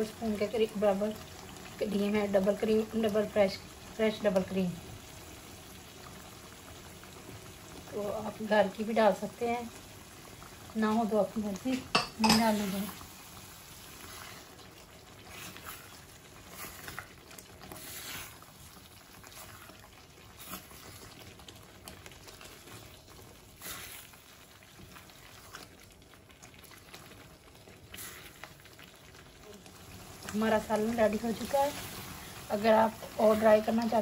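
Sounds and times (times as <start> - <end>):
curry bubbling: 0.0 - 34.0
spatula stirring and scraping: 11.7 - 34.0.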